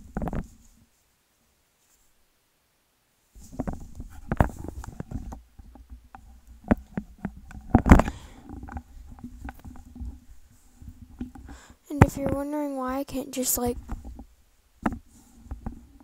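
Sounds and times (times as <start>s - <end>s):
plastic clicks and knocks: 11.2s - 12.4s.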